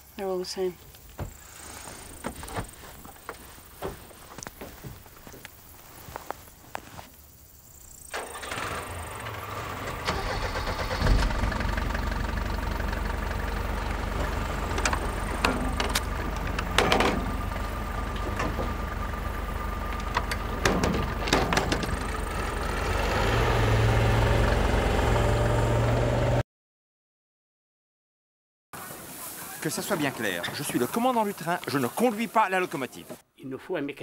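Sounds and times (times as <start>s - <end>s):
vehicle engine starting and running: 7.9s - 26.4s
knocks and clanks: 10.8s - 11.6s, 14.1s - 22.5s.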